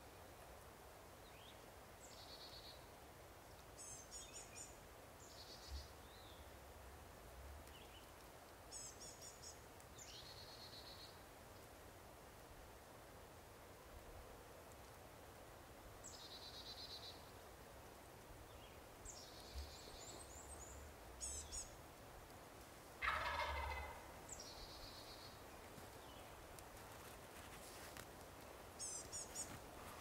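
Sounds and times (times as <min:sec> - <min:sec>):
turkey gobbling: 0:23.0 - 0:24.1.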